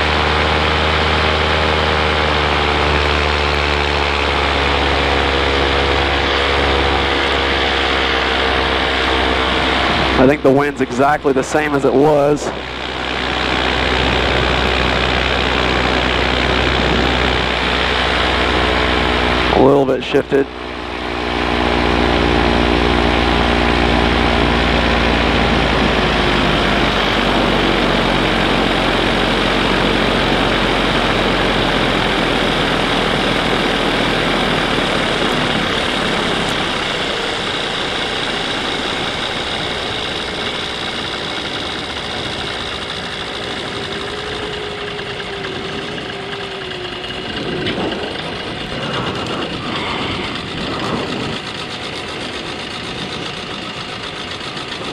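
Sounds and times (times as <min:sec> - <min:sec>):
paramotor engine and propeller: 0:00.0 - 0:54.9
rush of air: 0:48.7 - 0:51.6.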